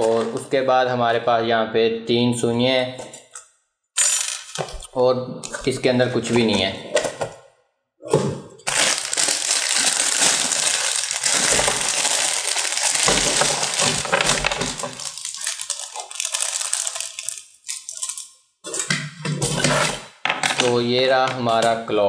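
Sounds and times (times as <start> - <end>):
plastic bag crinkling: 8.7 - 18.4.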